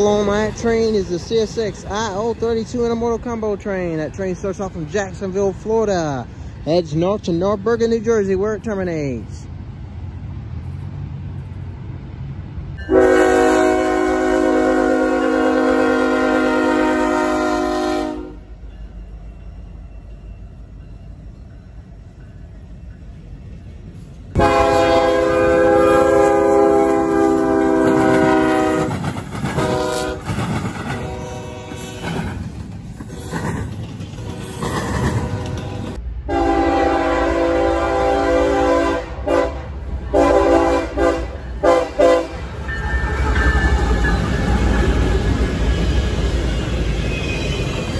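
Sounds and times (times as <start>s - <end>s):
freight train rumbling: 0.0s - 47.9s
locomotive air horn: 12.8s - 18.5s, 24.4s - 29.0s, 29.6s - 30.3s, 30.9s - 32.2s, 34.2s - 42.4s.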